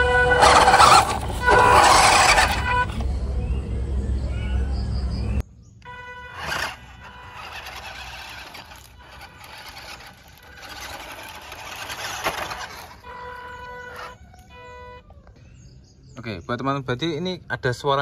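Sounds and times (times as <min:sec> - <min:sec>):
small electric motor whining: 0:00.0 - 0:03.0, 0:06.3 - 0:14.2
tyres crunching on gravel: 0:00.0 - 0:03.0, 0:06.3 - 0:14.2.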